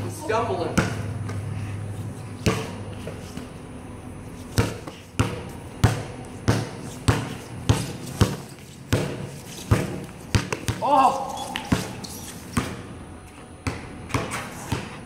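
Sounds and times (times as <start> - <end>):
basketball bouncing on concrete: 0.6 - 1.5, 2.4 - 3.6, 4.5 - 12.9, 13.5 - 15.0.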